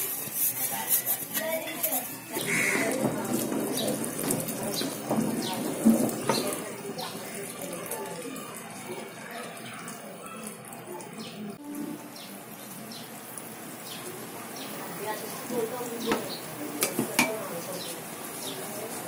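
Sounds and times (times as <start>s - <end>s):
syrup boiling and bubbling: 0.0s - 19.0s
knocks against metal pots: 16.0s - 17.5s.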